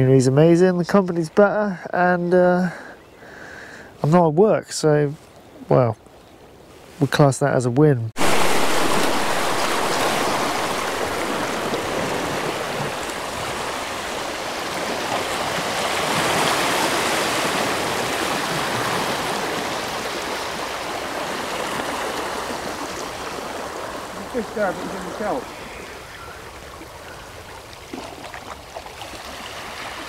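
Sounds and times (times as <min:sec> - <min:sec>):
rushing water: 0:08.2 - 0:30.0.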